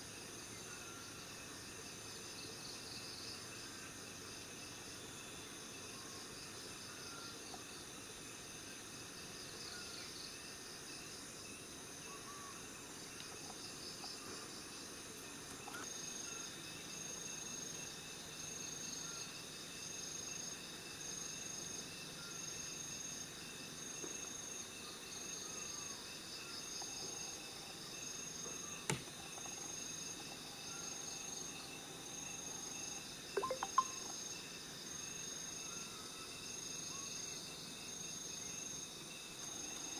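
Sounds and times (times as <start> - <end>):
insects and crickets chirping: 0.0 - 39.9
high repeating chirp: 33.4 - 34.1.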